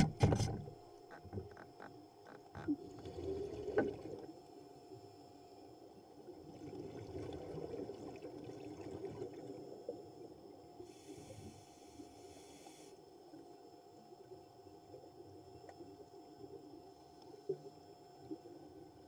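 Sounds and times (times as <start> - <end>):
muffled underwater churning: 0.0 - 14.4.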